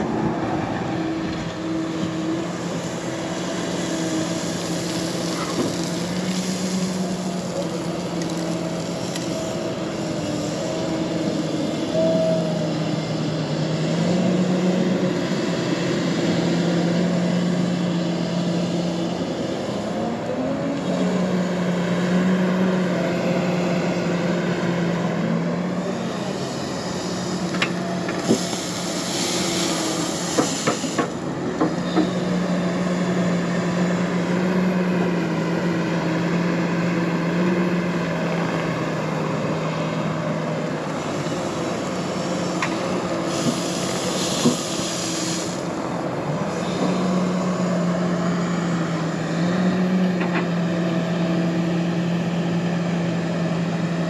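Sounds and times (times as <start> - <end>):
diesel engine running: 0.0 - 54.0
hissing bursts: 26.5 - 31.2, 41.1 - 45.9.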